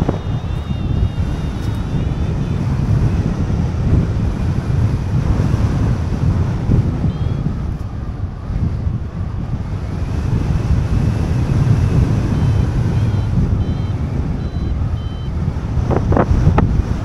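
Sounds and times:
variometer beeps: 0:00.0 - 0:03.3, 0:07.0 - 0:07.9, 0:11.2 - 0:15.4
wind rushing over microphone: 0:00.0 - 0:17.0.

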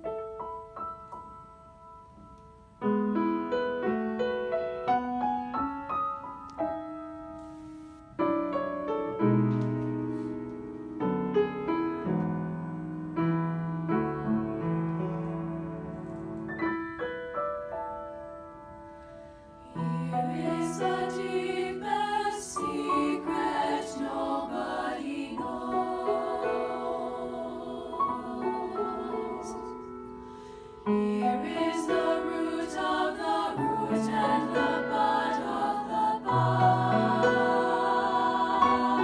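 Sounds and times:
piano playing: 0:00.0 - 0:39.0
choir singing in harmony: 0:19.6 - 0:39.0.

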